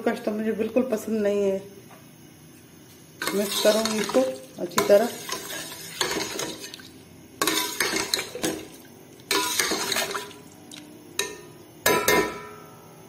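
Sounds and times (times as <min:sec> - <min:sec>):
metal ladle scraping a pot: 0:03.2 - 0:04.2, 0:04.8 - 0:06.8, 0:07.4 - 0:08.7, 0:09.3 - 0:10.4
liquid sloshing: 0:05.1 - 0:10.9.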